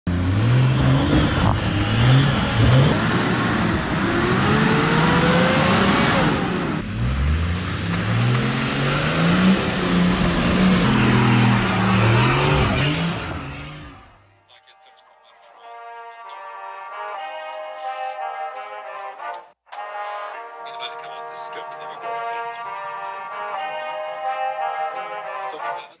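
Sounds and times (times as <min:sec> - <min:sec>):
off-road vehicle engines revving: 0:00.1 - 0:14.2.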